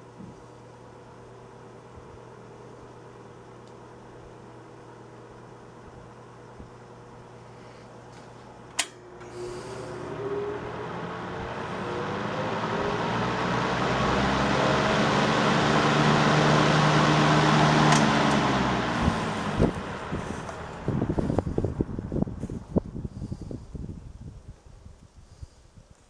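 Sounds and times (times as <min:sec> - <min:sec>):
electric fan motor hum and whir: 0:00.0 - 0:25.9
fan switch click: 0:08.7 - 0:09.4, 0:17.8 - 0:18.5.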